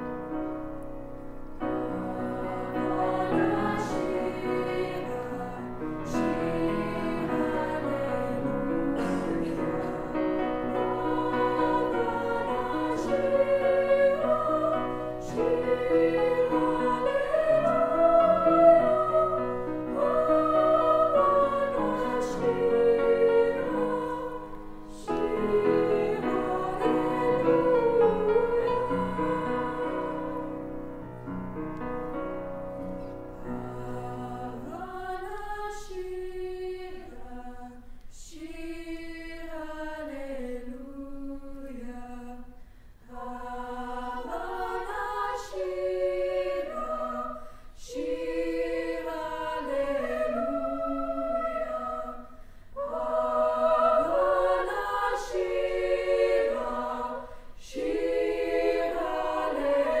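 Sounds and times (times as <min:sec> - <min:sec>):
girls' choir singing: 0:01.6 - 0:30.9, 0:33.4 - 1:00.0
solo voices singing: 0:01.6 - 0:31.4, 0:33.0 - 1:00.0.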